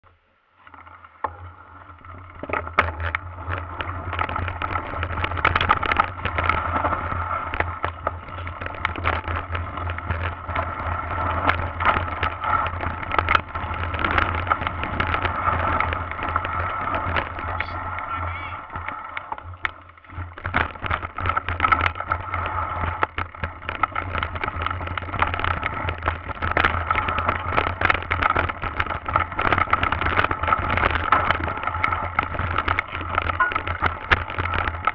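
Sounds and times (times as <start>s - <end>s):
low hum: 0.0s - 20.3s, 27.8s - 34.9s
bike rattling and knocking: 1.2s - 34.9s
rushing tyre and wind noise: 1.8s - 34.9s.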